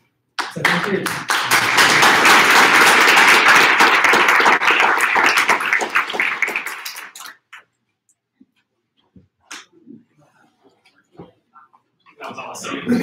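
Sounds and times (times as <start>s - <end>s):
audience applauding: 0.4s - 7.6s.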